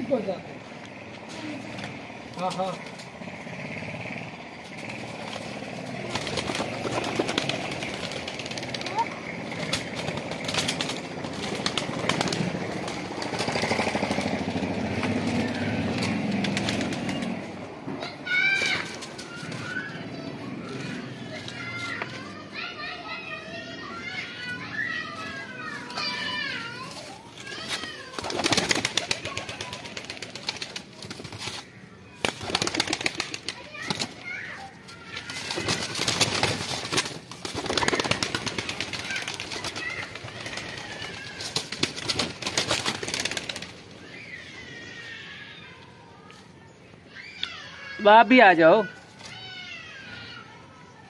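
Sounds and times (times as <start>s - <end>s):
pigeon wings flapping: 4.8s - 17.5s, 26.3s - 34.4s, 35.0s - 43.9s.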